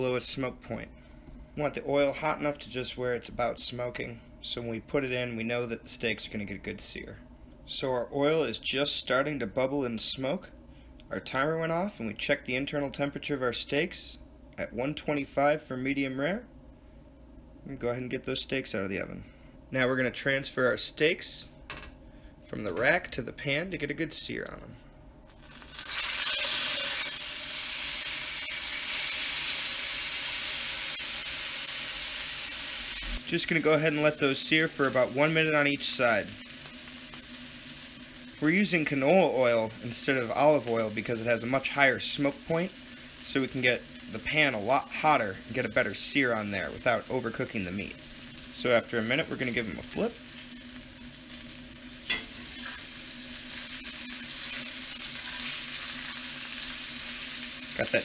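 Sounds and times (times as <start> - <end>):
steaks sizzling in a skillet: 25.4 - 58.0
fork clinking on skillet: 52.0 - 52.4.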